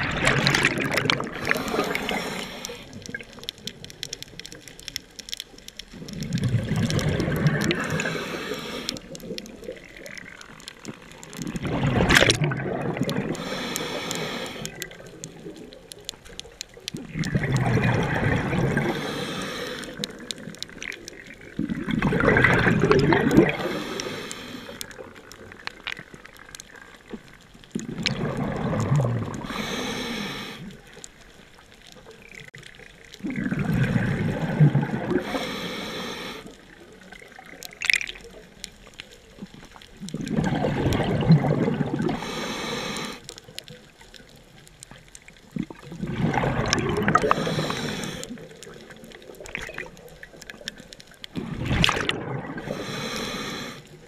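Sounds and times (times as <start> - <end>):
exhaled bubbles rushing: 0.0 - 4.6, 5.9 - 16.1, 16.7 - 29.6, 32.2 - 35.4, 39.4 - 42.3, 45.2 - 53.0.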